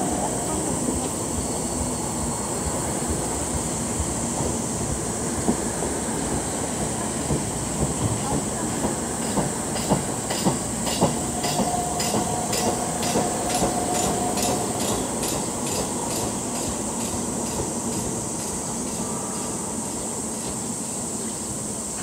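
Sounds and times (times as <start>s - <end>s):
train wheels knocking: 5.4s - 19.0s.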